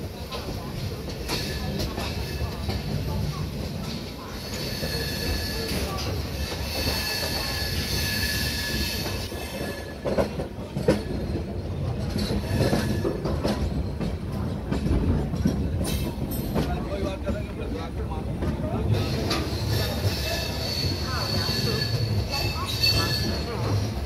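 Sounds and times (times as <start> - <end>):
train wheels rumbling on track: 0.0 - 24.0
wheels clacking over rail joints: 0.0 - 24.0
high-pitched wheel squeal: 4.4 - 10.1, 19.3 - 23.9.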